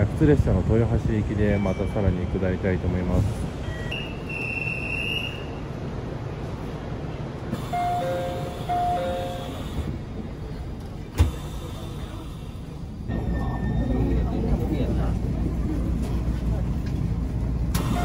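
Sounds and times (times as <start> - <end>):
train interior low rumble: 0.0 - 18.0
train doors shutting thump: 11.0 - 12.1, 17.7 - 18.0.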